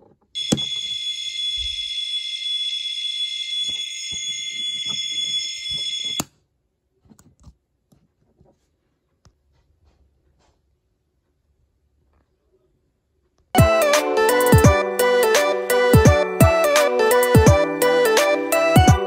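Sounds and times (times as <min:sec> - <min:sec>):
high ringing fire alarm: 0:00.4 - 0:06.3.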